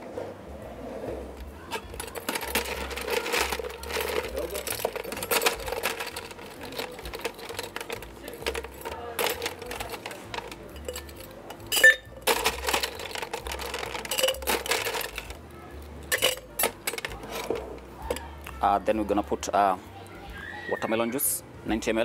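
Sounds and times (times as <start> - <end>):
ice cubes clinking in metal: 1.6 - 18.4.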